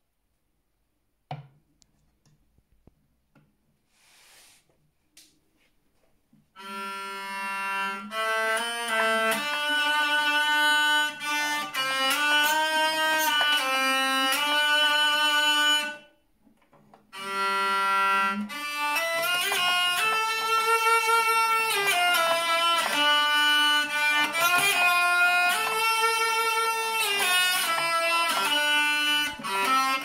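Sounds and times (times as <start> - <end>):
hurdy-gurdy drone and melody: 6.6 - 16.1, 17.2 - 30.0.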